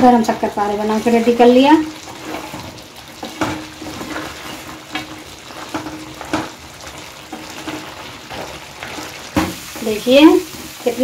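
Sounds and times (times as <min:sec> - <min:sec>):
syrup bubbling and sizzling in a pan: 0:00.0 - 0:11.0
spatula scraping a pan: 0:00.9 - 0:11.0.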